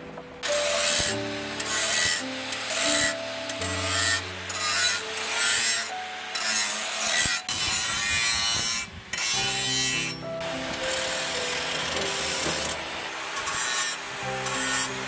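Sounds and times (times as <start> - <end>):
angle grinder grinding steel: 0.4 - 15.0.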